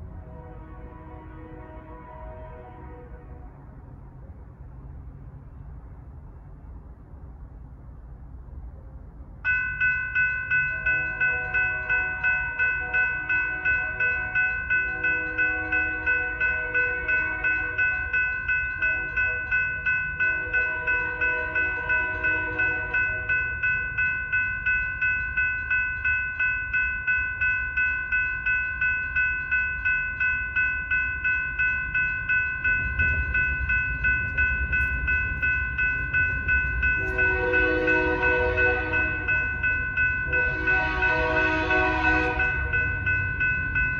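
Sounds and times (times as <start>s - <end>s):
train horn: 0.0s - 3.9s, 10.8s - 19.6s, 20.2s - 23.4s, 36.9s - 39.5s, 40.3s - 42.9s
low rumble of train: 0.0s - 43.9s
railroad crossing bells ringing: 9.4s - 43.9s.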